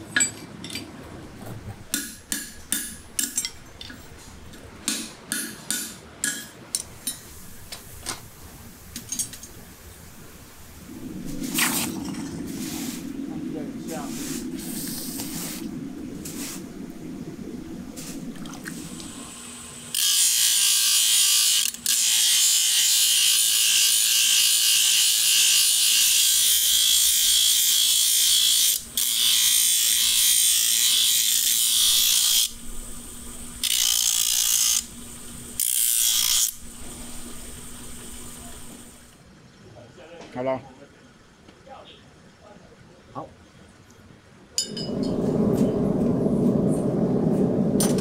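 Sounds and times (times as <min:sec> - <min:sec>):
hot steel bubbling in water: 0:06.8 - 0:20.8, 0:31.9 - 0:39.1
bench grinder grinding steel: 0:19.8 - 0:32.5, 0:35.6 - 0:36.6.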